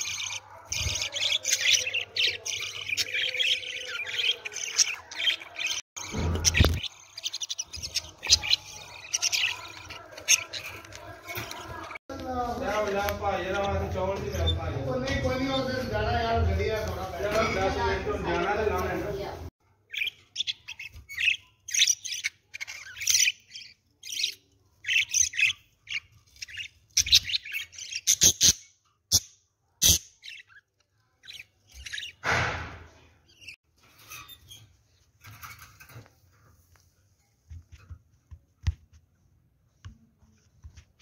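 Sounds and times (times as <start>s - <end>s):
budgerigars chirping: 0.0s - 11.9s, 19.9s - 32.2s.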